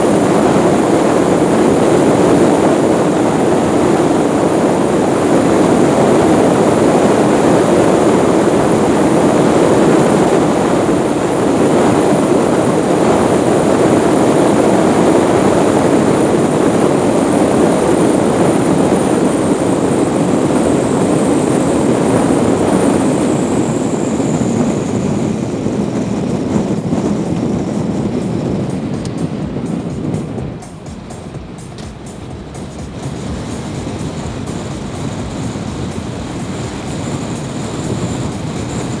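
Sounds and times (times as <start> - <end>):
car road and engine noise: 0.0 - 39.0.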